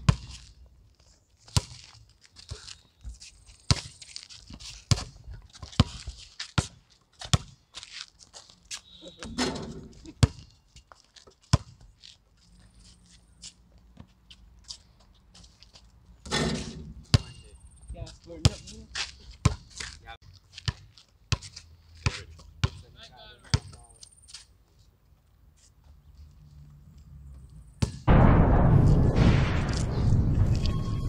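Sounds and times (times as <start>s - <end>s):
basketball bouncing on concrete: 0.0s - 0.4s, 16.3s - 17.4s, 19.4s - 19.7s, 20.7s - 22.8s, 23.5s - 23.9s.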